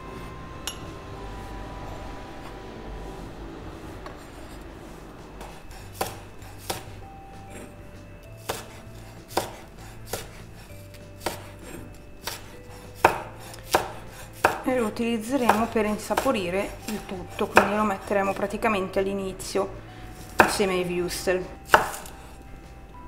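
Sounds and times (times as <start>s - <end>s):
knife chopping on wooden board: 5.4s - 7.7s, 8.4s - 14.7s, 15.4s - 17.8s, 20.3s - 20.7s, 21.7s - 22.2s.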